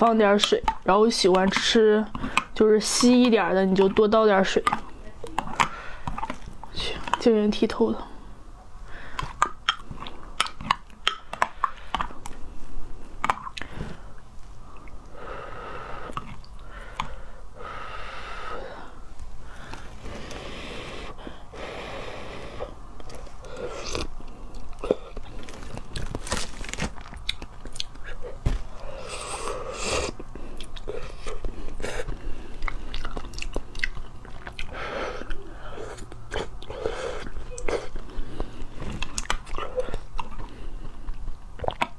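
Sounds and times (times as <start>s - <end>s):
chewing nuts: 0.4s - 7.3s, 9.1s - 12.4s, 13.2s - 13.8s, 16.1s - 17.2s, 23.0s - 28.4s, 30.1s - 41.9s
wet mouth clicks: 9.1s - 12.4s, 16.0s - 17.2s, 32.5s - 40.5s, 41.6s - 41.9s.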